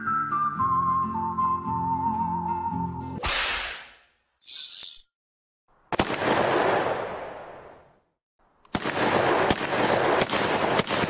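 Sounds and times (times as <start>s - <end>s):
rapid crackle of gunshots: 5.9s - 7.2s, 8.7s - 11.0s
gunshot with long echo: 5.9s - 7.7s, 8.7s - 11.0s.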